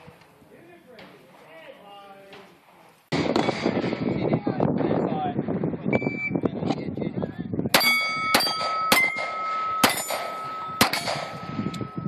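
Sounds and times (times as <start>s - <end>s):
pistol shots: 7.8s - 11.6s
steel plate target clanging: 7.8s - 12.0s.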